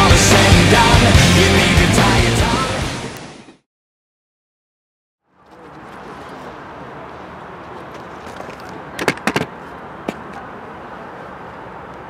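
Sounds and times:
outdoor background noise: 5.2s - 12.0s.

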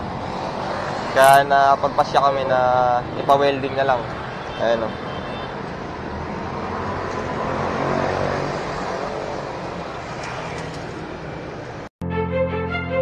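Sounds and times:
vehicle passing: 0.0s - 5.0s, 5.6s - 11.9s
street traffic: 0.0s - 11.9s.

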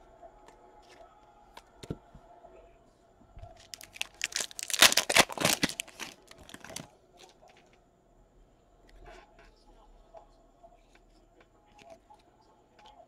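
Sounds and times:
foil wrapper tearing and crinkling: 3.6s - 6.9s.

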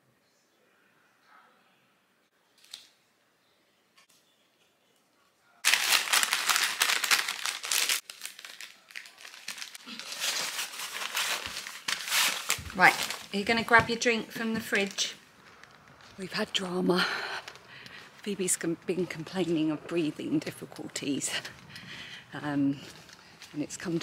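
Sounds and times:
paper packaging crinkling: 5.6s - 16.2s.

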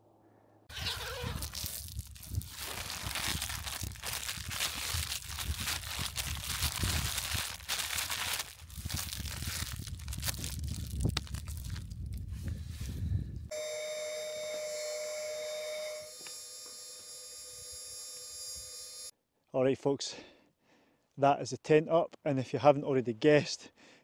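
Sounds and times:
tent fabric crinkling: 0.7s - 12.0s
wind buffeting microphone: 1.2s - 13.5s.

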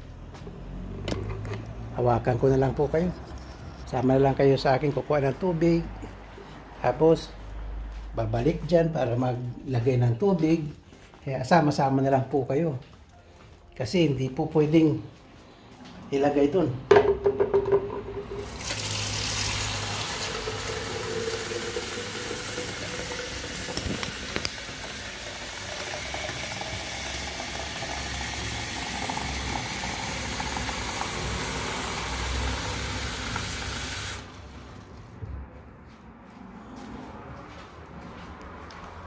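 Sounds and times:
tap water filling a plastic jug: 18.4s - 34.3s.

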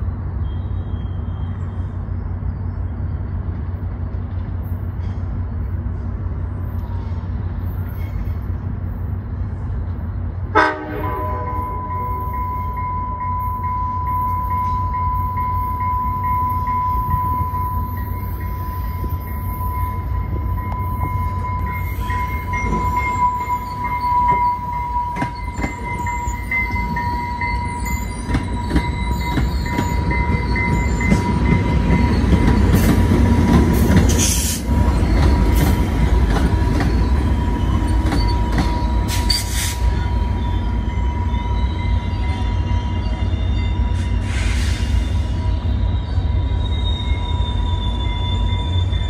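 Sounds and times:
diesel locomotive engine rumble: 0.0s - 49.0s
high-pitched squeal: 10.9s - 49.0s.

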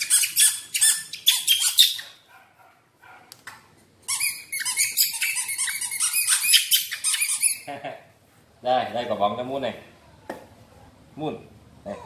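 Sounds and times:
baby monkey squeaking: 0.0s - 2.2s, 4.1s - 7.7s.

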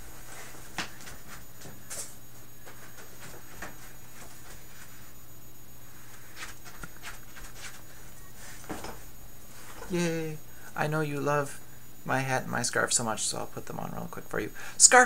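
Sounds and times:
knocks and rustles of movement: 0.0s - 5.2s, 6.1s - 10.0s
steady low hum: 0.0s - 15.0s.

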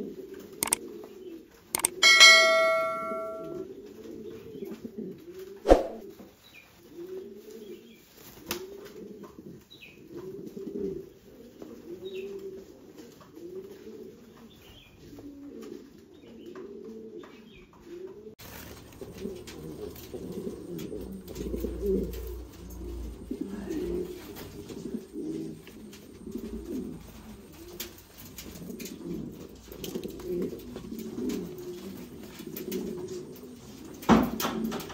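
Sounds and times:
sharp click: 1.8s - 3.6s
pigeons cooing: 6.8s - 34.9s.

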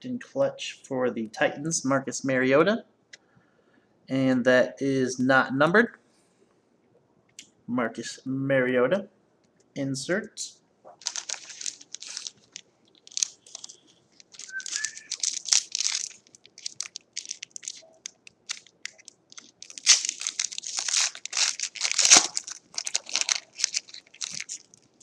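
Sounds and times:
foil wrapper crinkling: 11.0s - 25.0s.

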